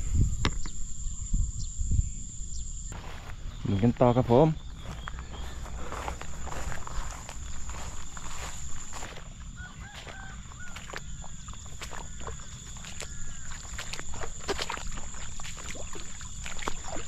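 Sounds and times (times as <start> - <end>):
insect drone: 0.0 - 17.0
footsteps splashing through water: 4.7 - 17.0.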